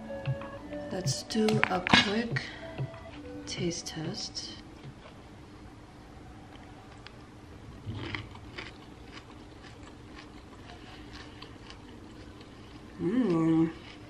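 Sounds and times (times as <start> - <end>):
soft crunching chewing: 6.5 - 14.0.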